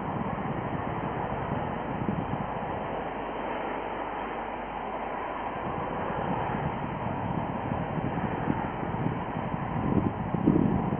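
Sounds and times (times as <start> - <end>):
distant rushing roar: 0.0 - 10.9
wind buffeting microphone: 0.0 - 10.9.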